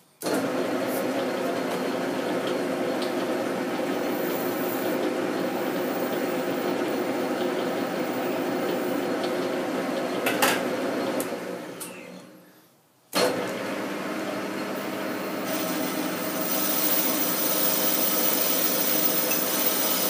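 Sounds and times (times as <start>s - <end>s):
metal lathe running: 1.3s - 10.2s, 15.3s - 20.0s.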